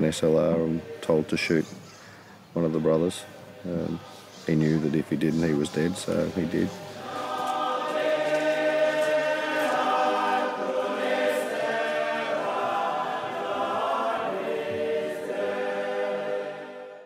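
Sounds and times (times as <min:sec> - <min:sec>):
choir singing sustained chords: 0:00.0 - 0:01.8, 0:05.2 - 0:17.0.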